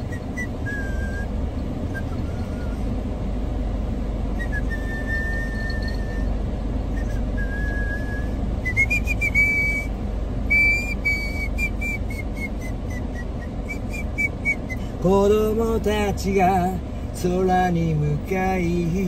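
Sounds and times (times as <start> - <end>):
person whistling a melody: 0.0 - 2.9, 4.4 - 15.0.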